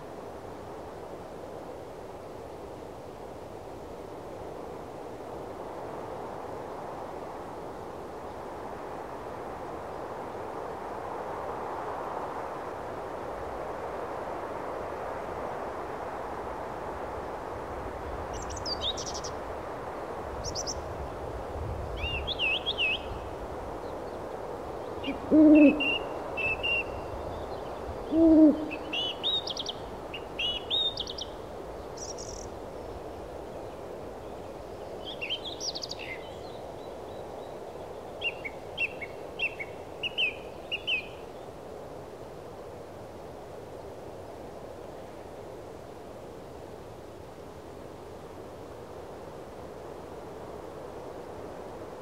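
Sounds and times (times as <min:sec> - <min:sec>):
steady background hiss: 0:00.0 - 0:52.0
owl hooting: 0:25.0 - 0:26.9, 0:28.1 - 0:29.3.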